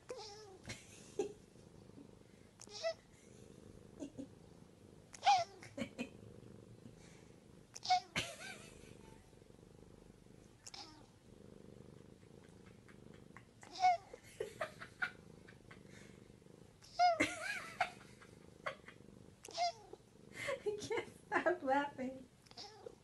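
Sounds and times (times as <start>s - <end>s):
cat purring: 0.0s - 23.0s
cat meowing: 0.1s - 0.6s, 2.6s - 3.0s, 5.2s - 5.7s, 7.8s - 8.2s, 10.6s - 11.1s, 13.6s - 14.2s, 19.4s - 20.0s, 22.5s - 23.0s.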